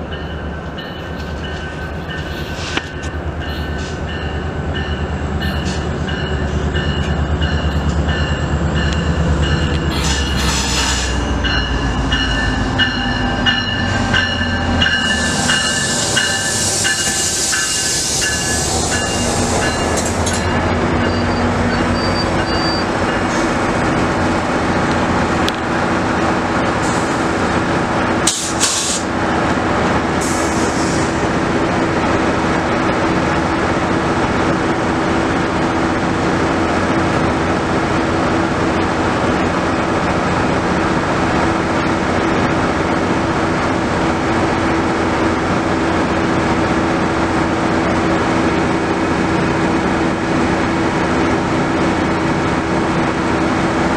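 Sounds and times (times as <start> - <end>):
diesel locomotive idling: 0.0 - 31.6
hiss of air: 26.8 - 27.3, 28.2 - 29.1, 30.2 - 31.2.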